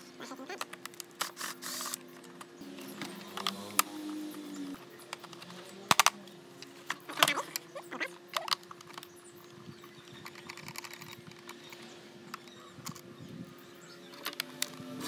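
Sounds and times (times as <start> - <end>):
plastic housing clicking and knocking: 5.0 - 6.2, 8.3 - 9.2, 10.2 - 13.0.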